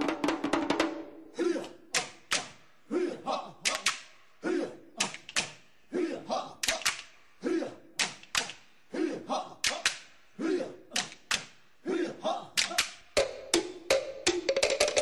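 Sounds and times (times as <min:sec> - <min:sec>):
sharp rhythmic knocks: 0:00.0 - 0:01.0, 0:01.9 - 0:02.6, 0:12.6 - 0:15.0.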